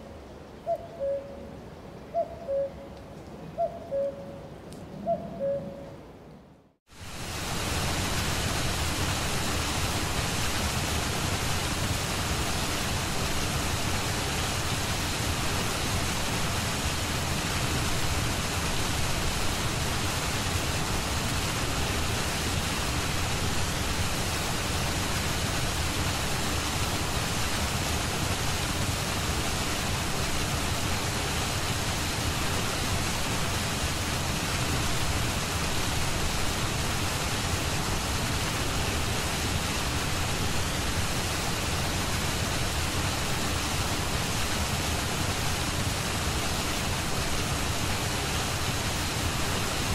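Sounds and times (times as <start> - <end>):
steady broadband rushing noise: 6.9 - 49.9.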